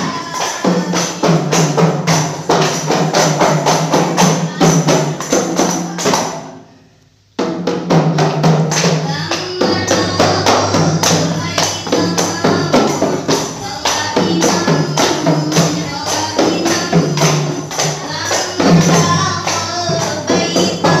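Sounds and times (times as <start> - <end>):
frame drums struck by hand: 0.0 - 6.5, 7.4 - 21.0
women singing: 0.0 - 6.6, 8.7 - 21.0.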